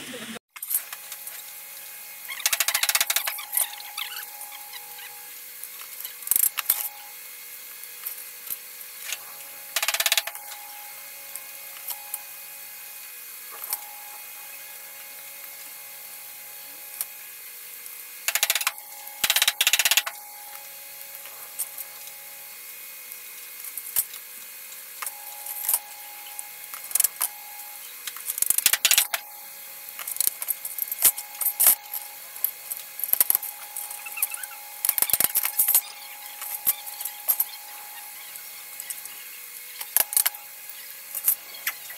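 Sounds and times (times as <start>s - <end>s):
steady background hum: 0.0s - 41.9s
tools scraping and clicking: 2.3s - 4.6s, 18.3s - 20.2s, 28.1s - 29.2s, 30.0s - 37.6s.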